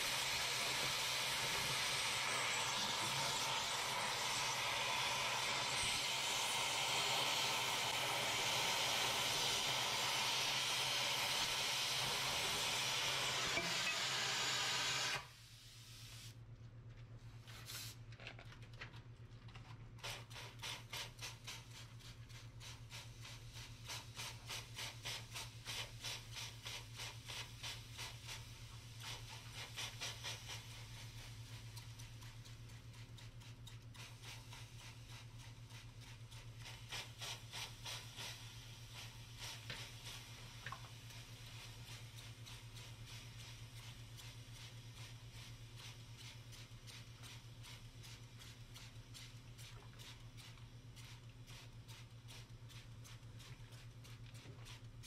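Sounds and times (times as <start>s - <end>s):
cutting torch hissing: 0.0s - 16.3s
steam hissing: 0.0s - 16.3s, 20.0s - 31.9s, 33.9s - 49.4s
spray bottle squirting water: 20.0s - 28.1s.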